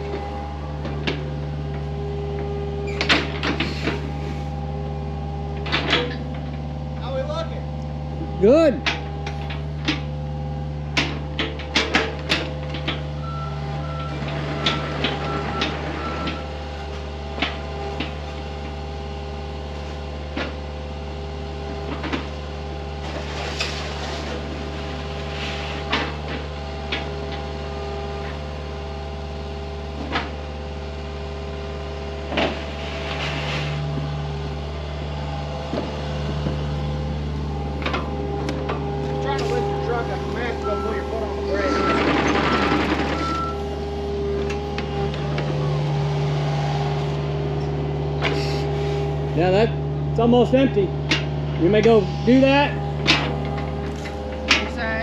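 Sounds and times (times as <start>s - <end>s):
knocks and clanks: 0.0s - 4.1s, 5.5s - 6.7s, 8.8s - 10.2s, 10.9s - 13.2s, 35.6s - 43.6s, 51.0s - 52.0s, 52.8s - 55.0s
excavator engine with whine: 0.0s - 55.0s.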